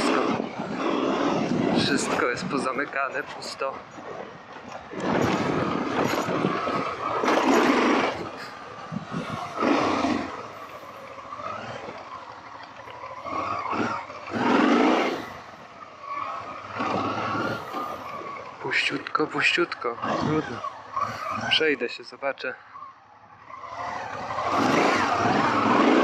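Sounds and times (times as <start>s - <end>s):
wind noise on microphone: 0.0s - 10.6s
motorcycle engine running: 0.0s - 21.9s, 22.6s - 26.0s.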